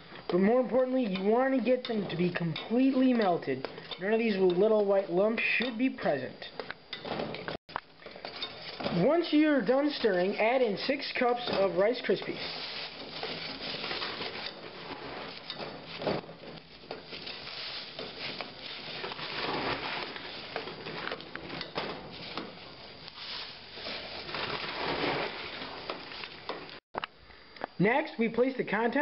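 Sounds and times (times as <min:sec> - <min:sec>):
cereal crunchy rustling: 0:09.3 - 0:26.5
spatula scraping pot: 0:09.9 - 0:26.5.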